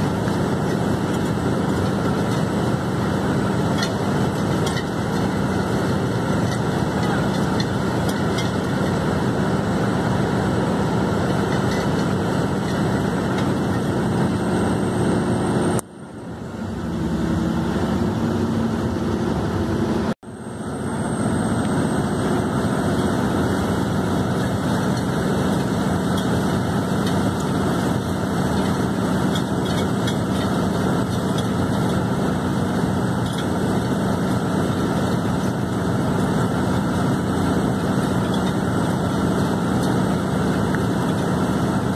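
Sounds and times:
drilling rig engine: 0.0 - 41.9.

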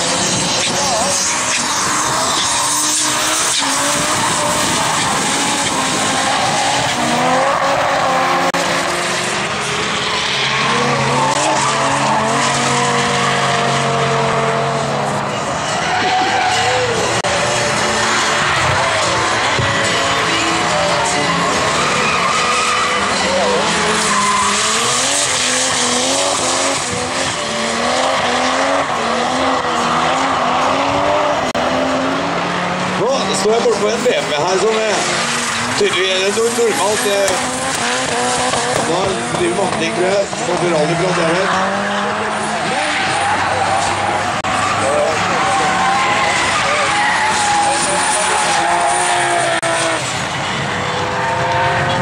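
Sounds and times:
car engines revving: 0.0 - 52.0
tyres squealing and skidding: 0.0 - 52.0
spinning tyres hissing: 15.3 - 31.5.

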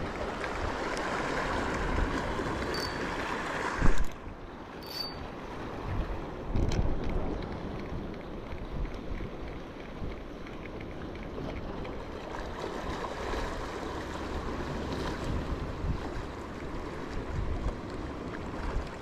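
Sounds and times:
sea washing against rocks: 0.0 - 19.0
wind buffeting microphone: 14.9 - 19.0.

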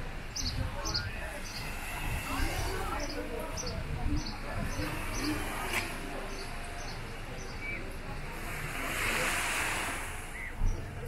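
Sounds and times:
sea waves washing onto shore: 8.2 - 11.0.

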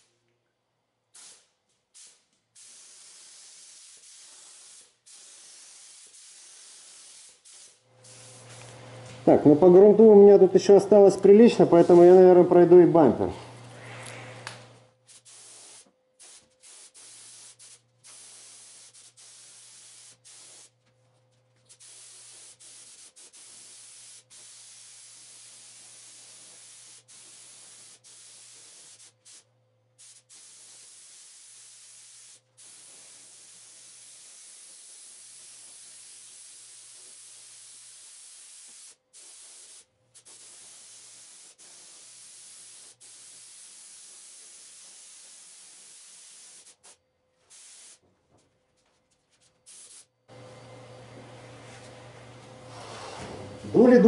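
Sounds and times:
spray gun hissing: 1.2 - 12.8, 15.1 - 20.8, 21.7 - 48.0, 49.7 - 50.1.

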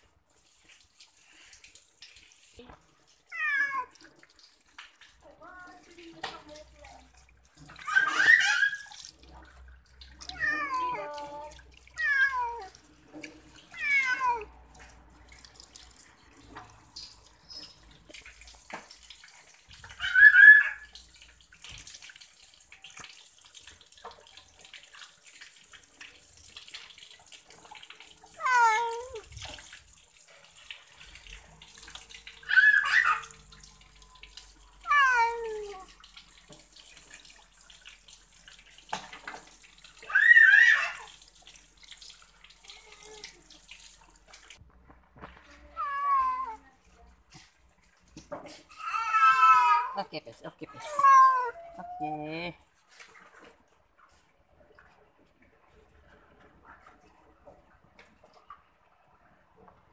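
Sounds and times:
water running from a hose into a sink: 0.0 - 59.9
cat meowing: 3.3 - 4.0, 10.2 - 12.8, 13.7 - 14.5, 28.3 - 29.3, 34.8 - 35.9, 45.8 - 46.6, 48.7 - 50.0, 50.8 - 52.2.

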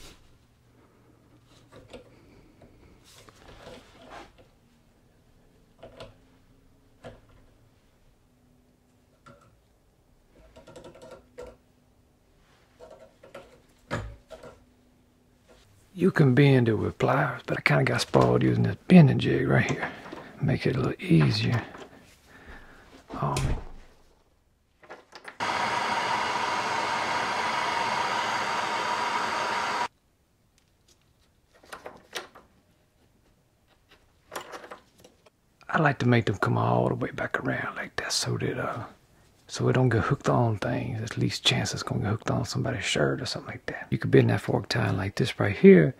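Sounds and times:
torch flame hissing: 25.4 - 29.9.

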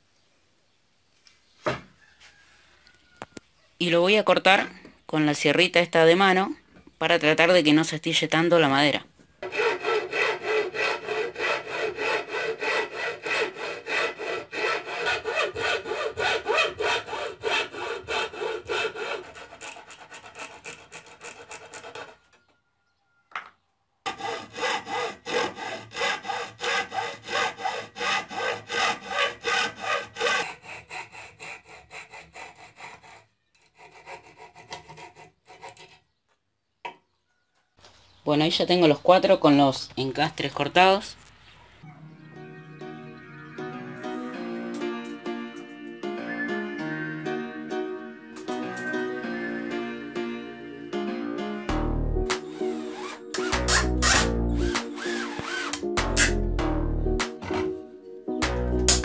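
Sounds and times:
hacksaw cutting plywood: 9.4 - 22.3, 24.1 - 36.0, 52.3 - 56.4, 57.2 - 57.8.

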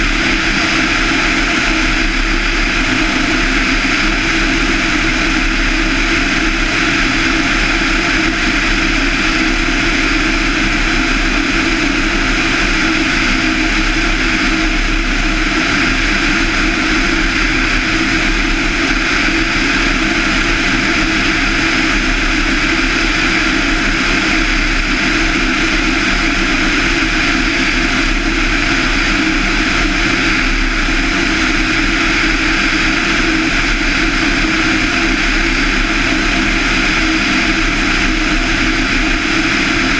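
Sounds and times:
propeller aircraft engine cruising: 0.0 - 39.9.

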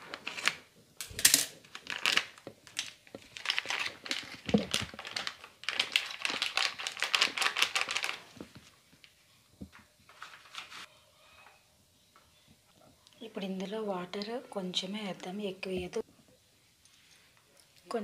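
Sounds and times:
plastic packet crinkling: 1.2 - 8.6.

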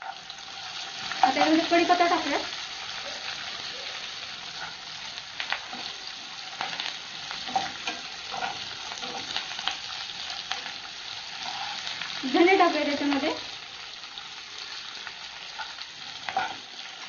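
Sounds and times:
spatula stirring pan: 0.0 - 12.2, 14.1 - 17.0
leaves sizzling and crackling in oil: 0.0 - 17.0.

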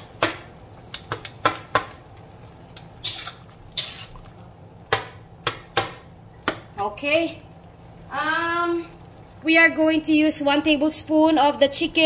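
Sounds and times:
metal spatula scraping a wok: 3.0 - 4.2.

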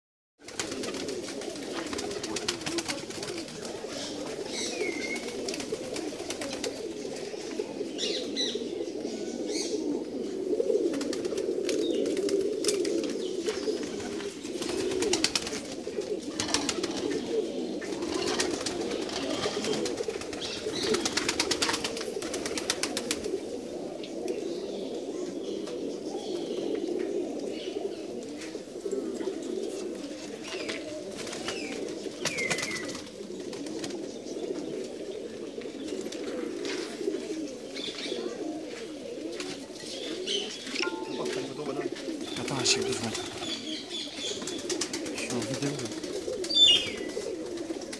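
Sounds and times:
pigeons cooing: 0.4 - 47.9
short higher bird calls: 40.6 - 41.7.

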